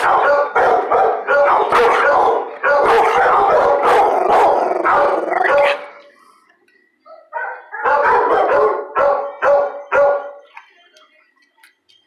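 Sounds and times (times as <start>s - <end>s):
dog barking: 0.0s - 5.9s, 7.1s - 10.4s.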